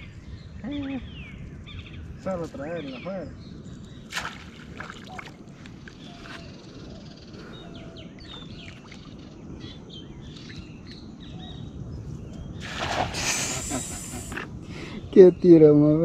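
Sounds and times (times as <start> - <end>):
small birds chirping: 0.0 - 16.0
cast net splashing into water: 4.1 - 5.4, 12.6 - 13.6.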